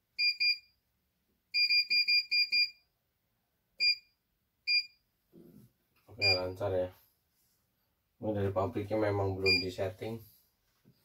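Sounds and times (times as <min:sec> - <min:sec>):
short keypad beeps: 0:01.6 - 0:02.8, 0:03.8 - 0:04.1, 0:04.7 - 0:05.0, 0:06.2 - 0:06.6, 0:09.4 - 0:09.7.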